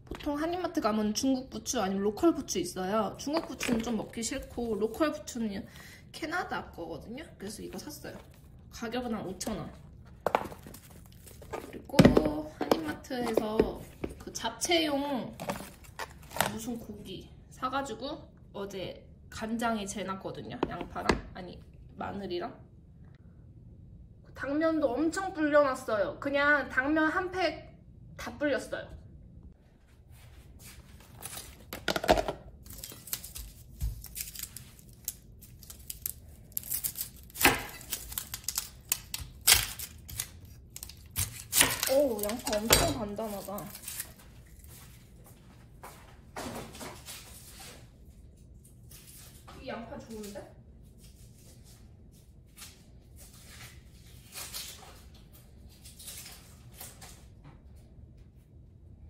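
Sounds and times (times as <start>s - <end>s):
low room hum: 0.0s - 59.0s
rustling and handling noises: 7.3s - 14.5s, 15.2s - 17.0s
onion skin crackling: 32.6s - 44.7s.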